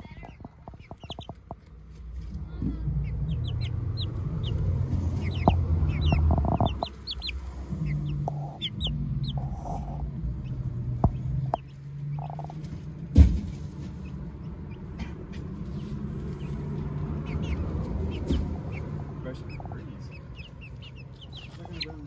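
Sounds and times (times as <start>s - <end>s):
sharp taps: 0.0s - 1.8s, 4.8s - 7.4s, 11.0s - 13.6s
chicks peeping: 0.0s - 22.0s
low rumble: 0.0s - 22.0s.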